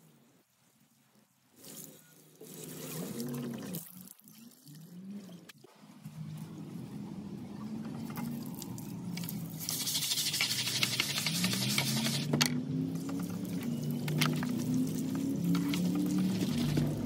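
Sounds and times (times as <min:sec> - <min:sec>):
scrub brush scrubbing concrete: 0:09.6 - 0:12.3.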